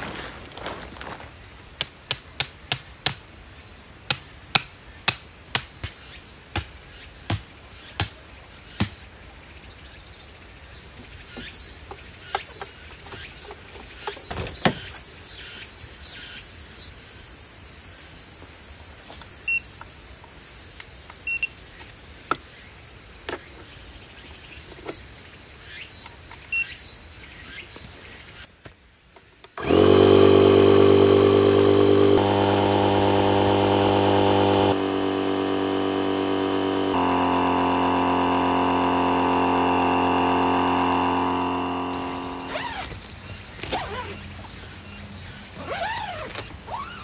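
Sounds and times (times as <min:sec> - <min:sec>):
electric air pump whining: 0:29.6 - 0:43.2.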